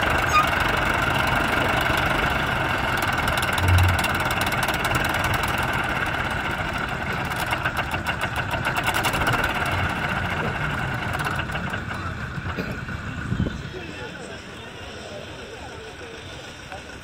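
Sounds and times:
tractor diesel engine idling: 0.0s - 17.0s.

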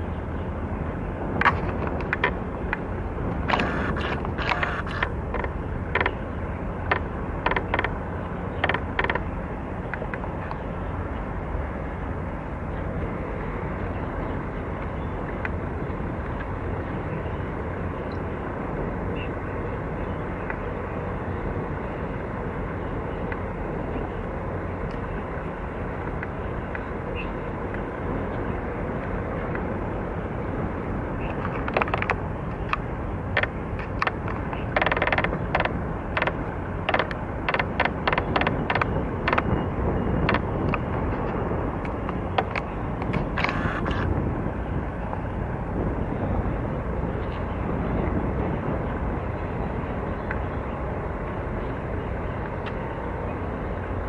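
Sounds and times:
ship engine rumble: 0.0s - 54.0s
sharp mechanical clicks: 33.4s - 39.5s.

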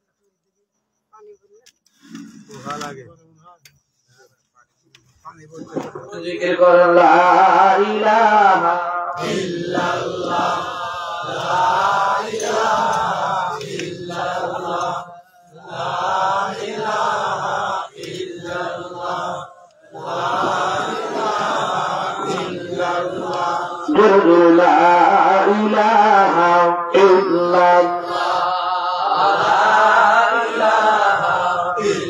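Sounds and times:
man chanting into microphone: 5.5s - 15.1s, 18.8s - 32.0s.

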